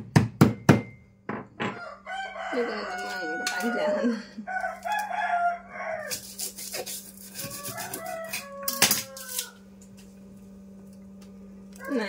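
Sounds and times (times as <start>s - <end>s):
tool knocking on kitchen surface: 0.0s - 1.8s.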